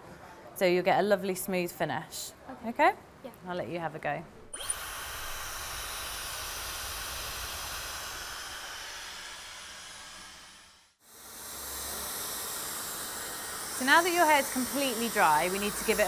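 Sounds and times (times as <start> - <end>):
hair dryer blowing: 4.5 - 16.0.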